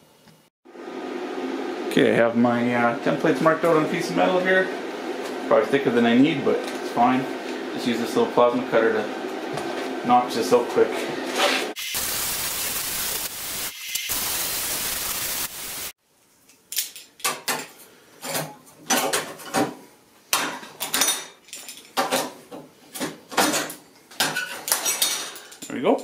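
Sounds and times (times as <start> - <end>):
plasma cutter hissing: 11.8 - 16.0.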